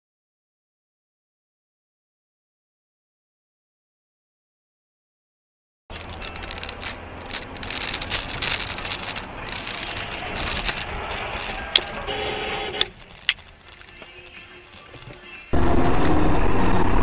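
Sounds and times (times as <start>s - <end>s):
small clicks: 5.9s - 15.5s.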